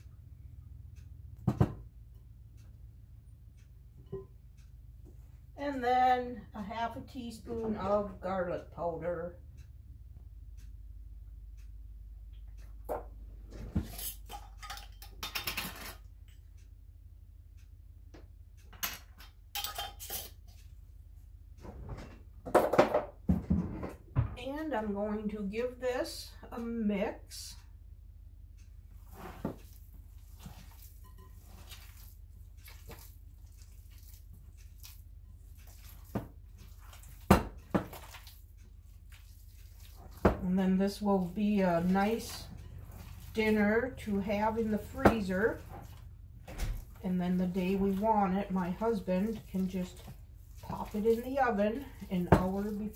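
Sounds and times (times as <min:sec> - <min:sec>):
glass jars clinking: 0:19.6 - 0:20.4
hands squishing meat mixture: 0:29.4 - 0:46.2, 0:46.8 - 0:52.9.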